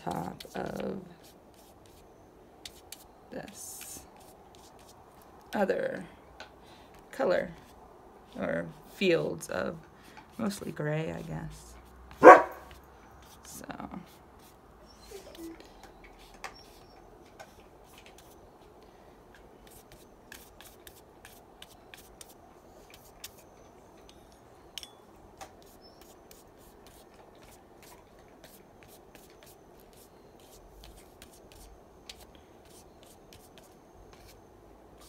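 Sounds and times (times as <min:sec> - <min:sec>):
pencil scratching on paper: 0:25.6 - 0:27.0, 0:27.8 - 0:34.4.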